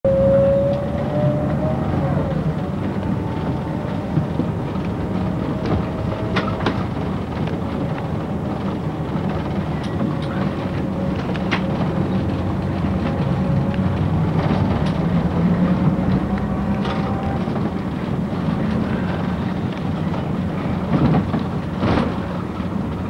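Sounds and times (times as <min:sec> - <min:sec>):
rising and falling whine: 0:00.1 - 0:06.2
bus engine running: 0:00.1 - 0:23.0.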